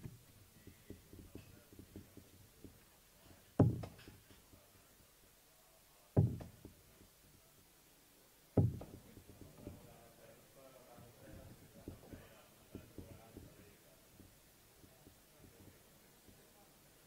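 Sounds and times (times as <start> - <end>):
darts thudding into a dartboard: 3.6 - 4.4, 6.2 - 6.8, 8.6 - 9.8.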